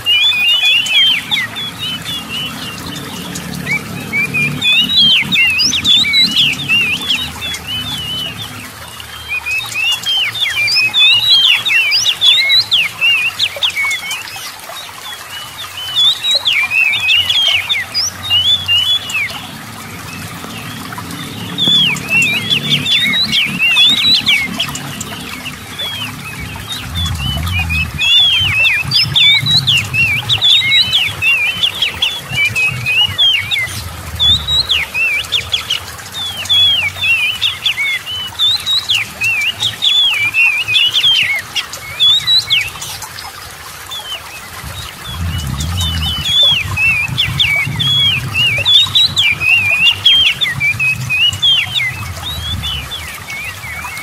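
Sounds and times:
water rushing over weir: 0.0 - 54.0
bird singing whistled notes: 15.6 - 42.8.

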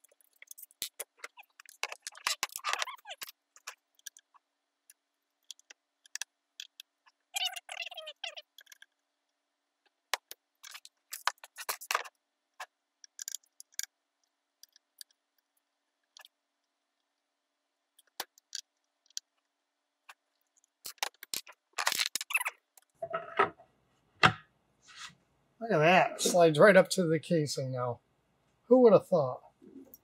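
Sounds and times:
sharp clicks of small parts: 13.0 - 13.9.

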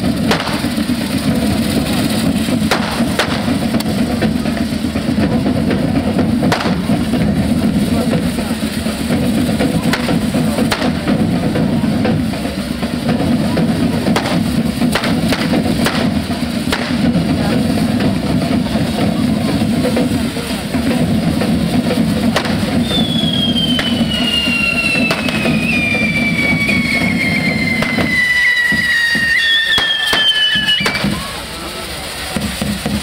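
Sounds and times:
drums playing loud rhythm: 0.0 - 33.0
high whistle falling in pitch: 22.8 - 31.3.

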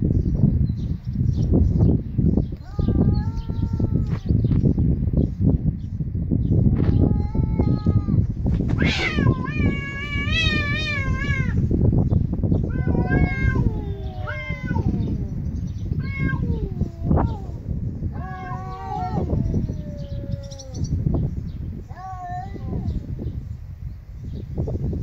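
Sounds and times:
cats meowing: 2.6 - 4.3, 6.8 - 11.6, 12.6 - 21.0, 21.9 - 23.1.

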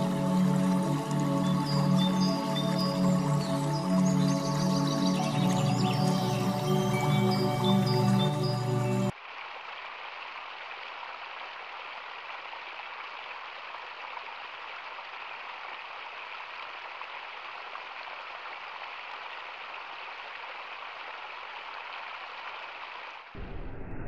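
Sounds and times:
stream splashing into pool: 9.1 - 23.4.

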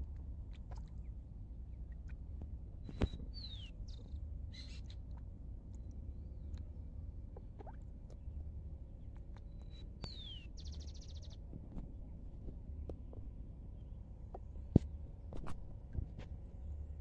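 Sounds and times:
low steady rumble: 0.0 - 17.0
faint bird chirping: 2.8 - 6.6, 9.3 - 11.4.

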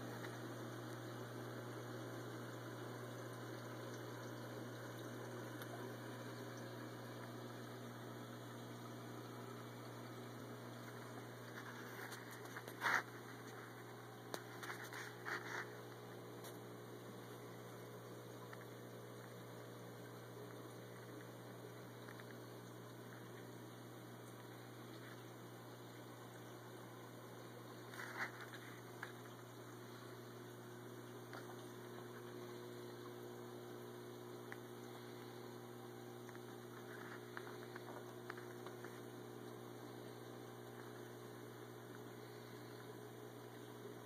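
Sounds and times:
aquarium hum: 0.0 - 44.0
aquarium water noise: 0.0 - 44.0.

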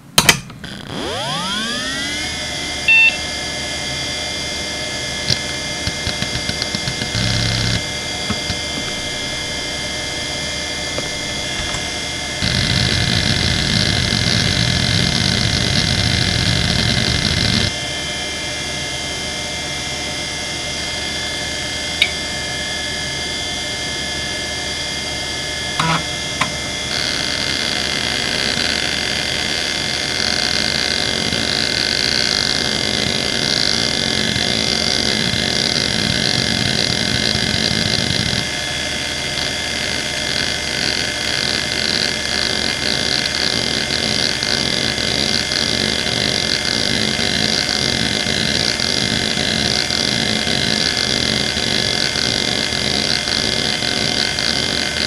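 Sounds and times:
hard drive whine: 0.0 - 55.0
hard drive seek chatter: 5.2 - 17.8, 25.8 - 38.6
hard drive clicks: 5.3 - 9.6, 25.8 - 26.6.

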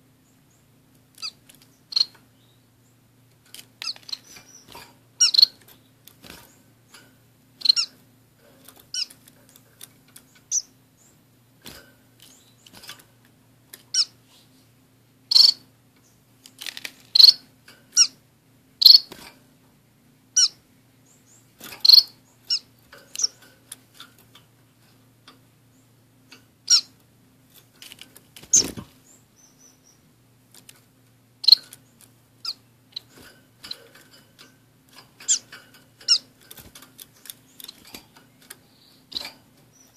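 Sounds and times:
finches chirping: 0.2 - 3.0, 3.8 - 6.7, 7.6 - 8.0, 8.9 - 9.6, 10.2 - 11.3, 13.9 - 14.2, 15.3 - 16.2, 17.1 - 18.2, 18.8 - 19.1, 20.3 - 23.4, 26.6 - 27.0, 28.5 - 30.1, 31.4 - 34.0, 35.2 - 36.4, 37.0 - 39.9.

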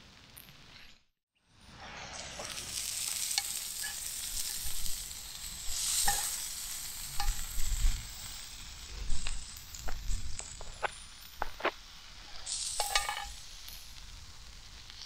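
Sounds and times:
food sizzling in a skillet: 1.6 - 15.0
metal tongs clicking on pan: 6.0 - 6.4, 7.2 - 7.5, 12.8 - 13.4.

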